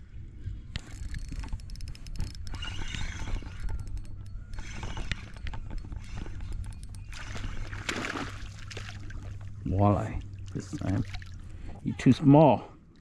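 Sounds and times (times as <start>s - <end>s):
low hum: 0.0s - 13.0s
fishing reel clicking and rattling: 0.8s - 7.9s.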